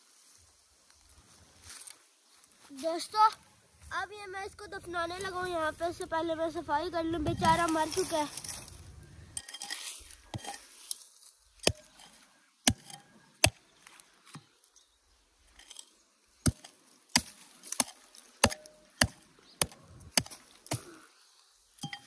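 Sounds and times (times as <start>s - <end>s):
hand tool chopping into ground: 11.6s - 13.6s, 15.6s - 21.0s.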